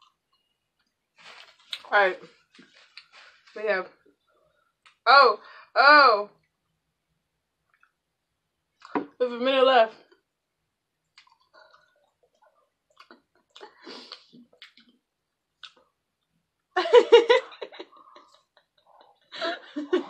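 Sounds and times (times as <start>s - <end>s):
chewing food: 11.1s - 15.0s, 15.6s - 16.0s.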